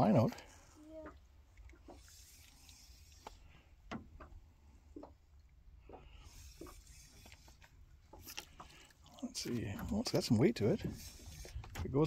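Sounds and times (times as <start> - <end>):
faint ticks and taps: 3.2 - 6.8.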